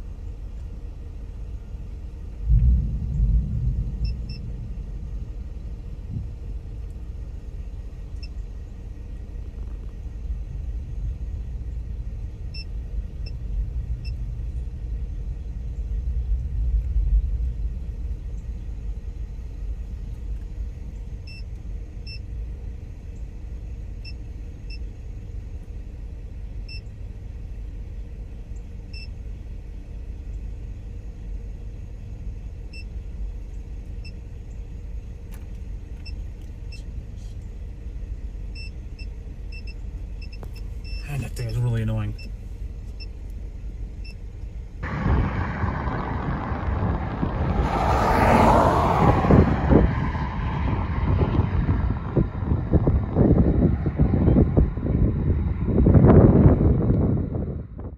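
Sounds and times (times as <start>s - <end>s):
wind buffeting microphone: 2.4s - 6.6s, 44.8s - 57.9s.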